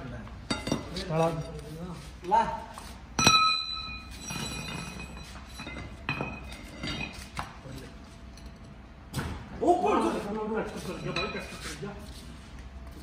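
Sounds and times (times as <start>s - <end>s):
metal clank ringing: 3.2s - 7.2s.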